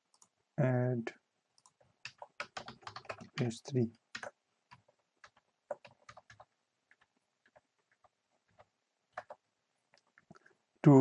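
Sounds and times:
computer keyboard clicks: 0:01.6 - 0:03.5, 0:04.2 - 0:09.4.

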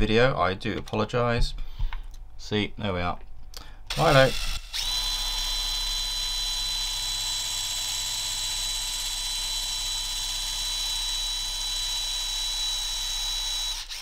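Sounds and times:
electric drill whining: 0:03.9 - 0:14.0.

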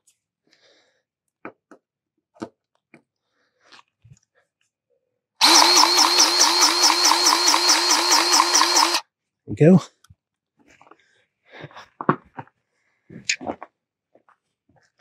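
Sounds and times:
grease gun motor pulsing: 0:05.4 - 0:09.0.

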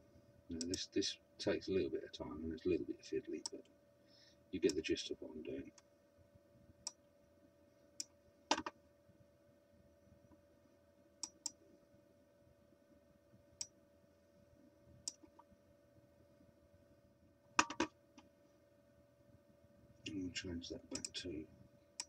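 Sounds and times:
faint steady hum: 0:00.0 - 0:22.0
computer mouse clicking: 0:00.5 - 0:00.8, 0:08.0 - 0:08.7, 0:11.2 - 0:11.6, 0:15.0 - 0:15.5, 0:17.6 - 0:17.9, 0:20.9 - 0:21.2.

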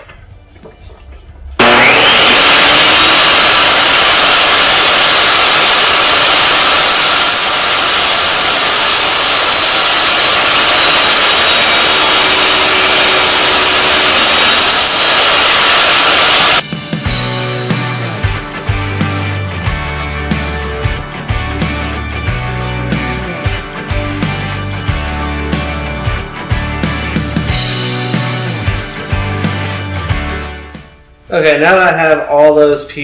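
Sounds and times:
saw cutting wood: 0:01.6 - 0:16.6
table saw motor whine: 0:01.6 - 0:16.6.

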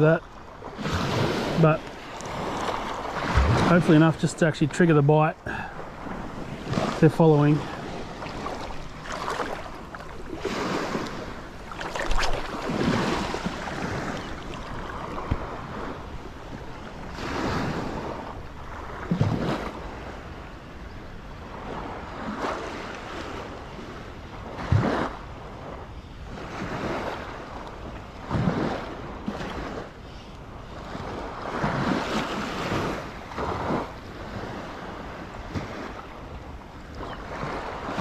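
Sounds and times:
wind buffeting microphone: 0:00.0 - 0:29.8
shallow water sloshing: 0:00.2 - 0:20.1.

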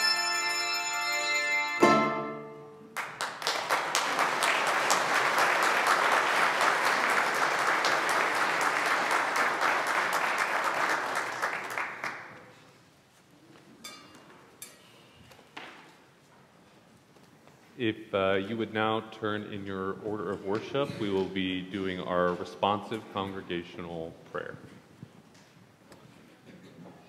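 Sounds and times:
congregation applauding: 0:02.9 - 0:12.6.

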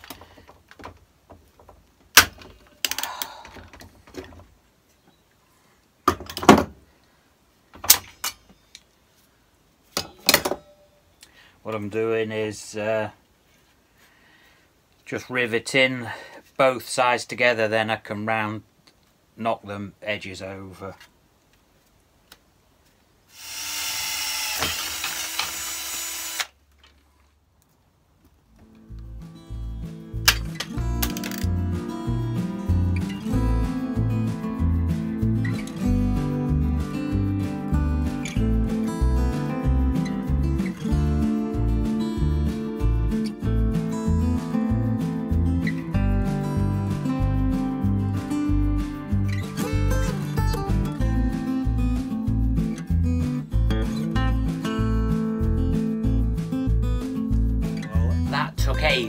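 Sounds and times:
power drill boring through steel: 0:23.3 - 0:26.5
rivet mandrels snapping: 0:30.2 - 0:31.5.

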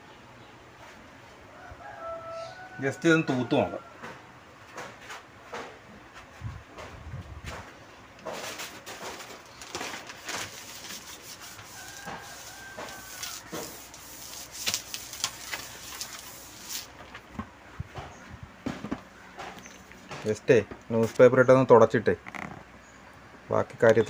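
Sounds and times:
hand rubbing screen surface: 0:10.1 - 0:17.2.

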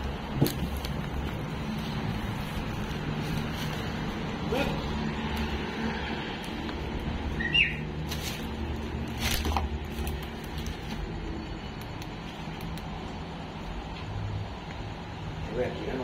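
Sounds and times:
bird chirp: 0:07.4 - 0:07.9.

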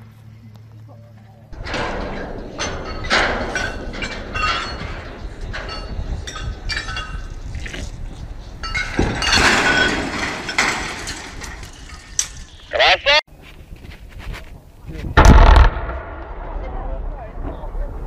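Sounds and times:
metallic clinks and creaks: 0:01.2 - 0:12.7
loud crash of tower: 0:15.2 - 0:17.7.

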